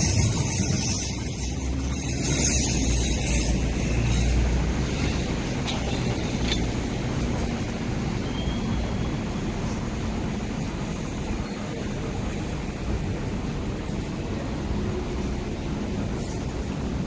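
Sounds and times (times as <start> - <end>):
light rail vehicle rumbling: 0.0 - 17.0.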